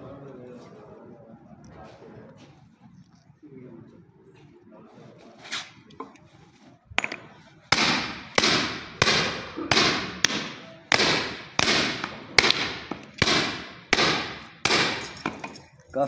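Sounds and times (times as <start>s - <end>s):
hammer striking steel punch: 7.0s - 15.4s.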